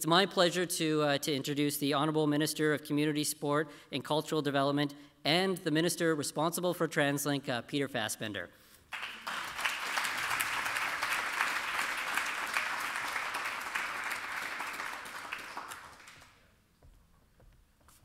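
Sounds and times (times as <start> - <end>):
audience applauding: 8.9 - 16.4.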